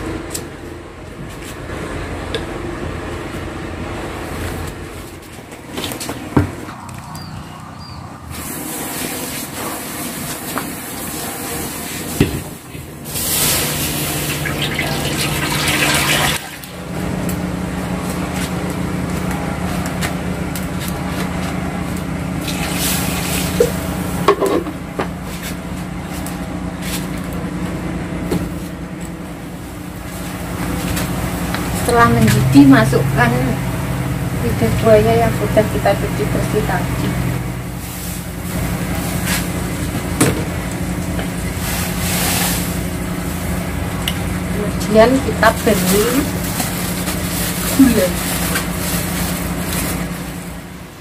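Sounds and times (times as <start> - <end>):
water pouring into pot: 13.2 - 16.6.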